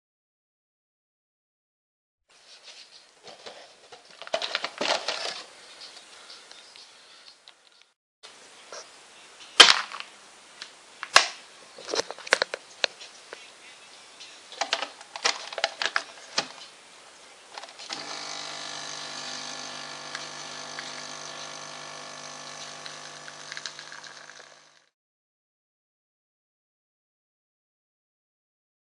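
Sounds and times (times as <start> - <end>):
coffee machine pump humming: 17.9 - 24.9.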